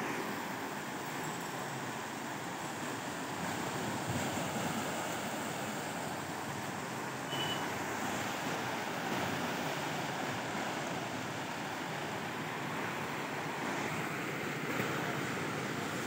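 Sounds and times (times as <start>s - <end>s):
river rushing: 0.0s - 16.0s
brief high tone: 7.3s - 7.7s.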